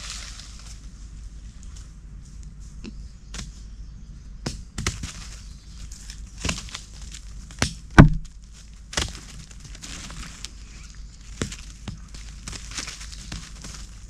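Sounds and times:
dry leaves crunching: 0.0 - 1.9, 4.8 - 14.0
heavy thump on ground: 7.6 - 8.4.

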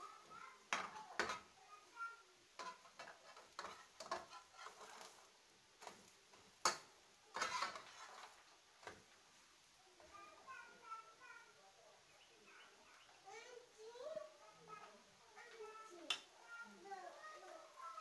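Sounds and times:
metal spatula scraping frying pan: 2.6 - 6.0, 6.6 - 8.4.

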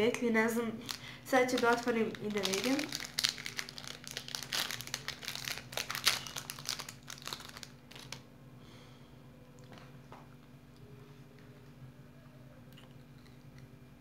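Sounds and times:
plastic wrapper crinkling: 0.8 - 8.2.

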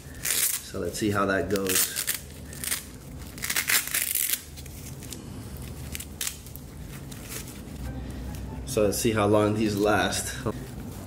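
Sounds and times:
hook-and-loop strap ripping: 1.5 - 5.2, 5.8 - 7.6.

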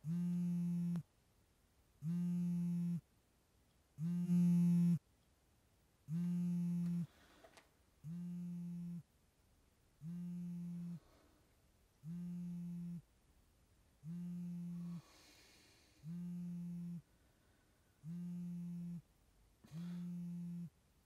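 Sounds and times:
mobile phone vibrating: 0.0 - 1.1, 2.0 - 3.1, 4.0 - 5.0, 6.1 - 7.4, 8.0 - 9.1, 10.0 - 11.3, 12.0 - 13.1, 14.0 - 17.2, 18.0 - 20.8.

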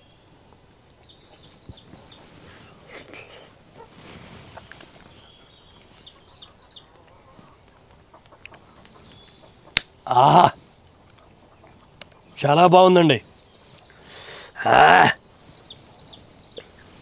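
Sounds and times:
birds chirping faintly: 0.0 - 17.0.

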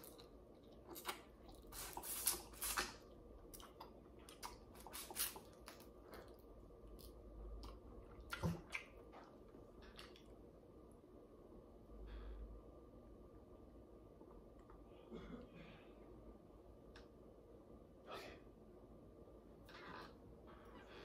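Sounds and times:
mouth chewing and sucking: 0.0 - 10.3.

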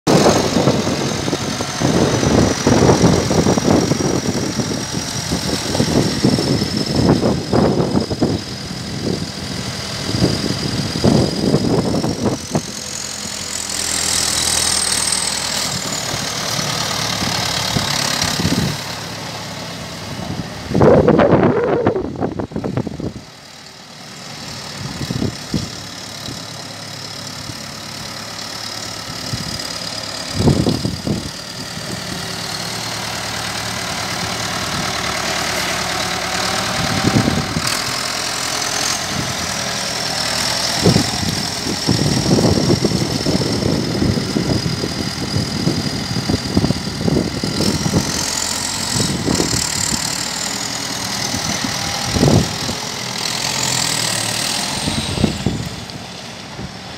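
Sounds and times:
tractor diesel engine running: 0.0 - 56.9.

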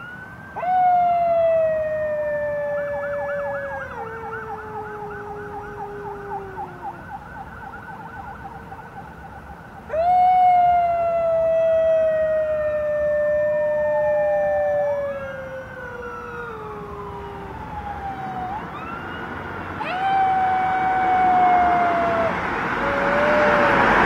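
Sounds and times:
jackal howling: 0.6 - 7.0, 9.9 - 18.7, 19.8 - 24.0
higher second howling voice: 19.8 - 24.0.

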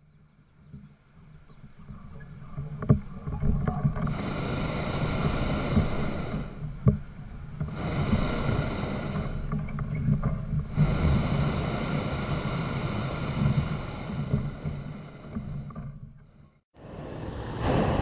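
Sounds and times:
propane burner roaring: 4.0 - 6.6, 7.6 - 9.5, 10.7 - 15.8.

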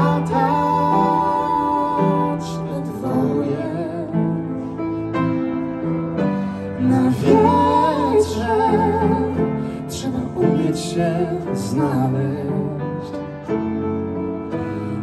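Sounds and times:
woman singing: 0.0 - 4.5, 6.7 - 13.2
piano and keyboard chords: 0.0 - 15.0.

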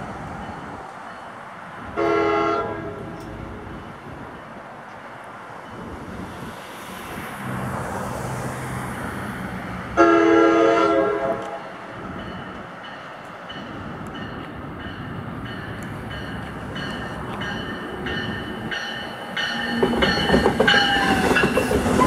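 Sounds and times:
rumble of oncoming train: 0.0 - 22.0
train horn blast: 1.9 - 3.2, 10.0 - 11.7
wheels clicking on rails: 15.6 - 22.0.

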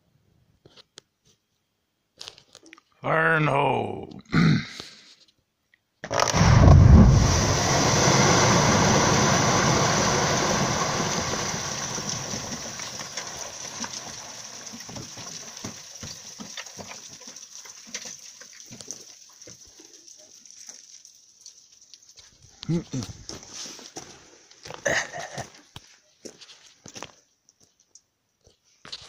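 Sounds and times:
rumble of collapsing rock: 6.0 - 18.2
falling stones clattering: 6.0 - 19.7
deep blast boom: 6.1 - 12.0.

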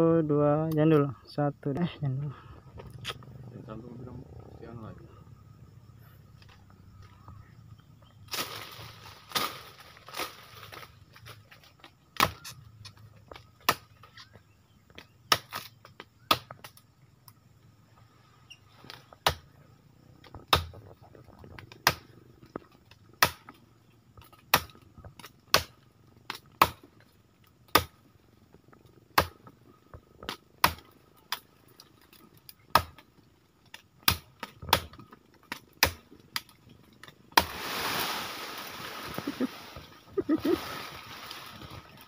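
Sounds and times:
leaves and branches rustling: 5.6 - 19.2, 20.1 - 42.0
machete chopping tree trunk: 12.2 - 12.5, 13.3 - 14.3, 15.0 - 16.8, 19.2 - 19.5, 20.3 - 20.8, 21.6 - 22.1, 23.1 - 23.6, 24.2 - 26.9, 27.7 - 28.1, 29.1 - 29.5, 30.2 - 31.4, 32.7 - 33.0, 33.7 - 37.8.

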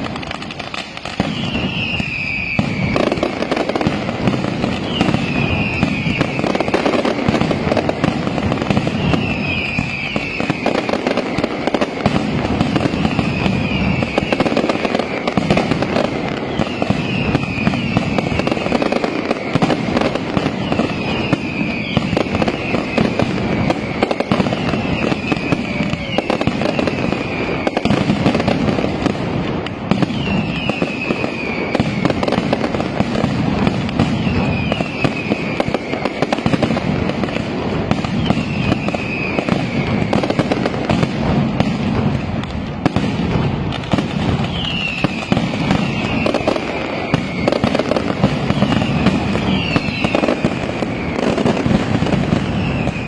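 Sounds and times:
firecracker bangs: 0.0 - 53.0
high falling whistle: 1.1 - 3.6, 4.8 - 7.2, 8.8 - 11.8, 12.9 - 15.4, 16.4 - 28.0, 38.0 - 40.4, 44.4 - 51.6.

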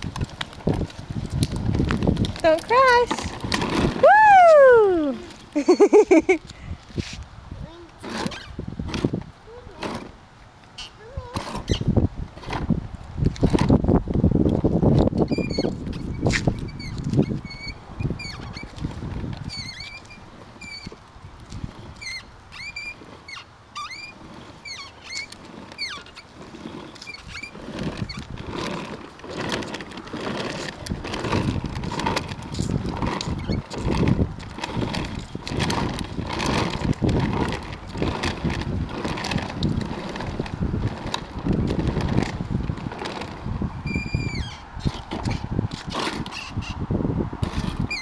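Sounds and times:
plastic toy wheels rolling on asphalt: 0.0 - 48.0
short high squeaks: 8.0 - 8.6, 10.7 - 12.0, 15.3 - 18.8, 19.4 - 21.0, 21.9 - 28.3, 43.8 - 46.9, 47.6 - 48.0.

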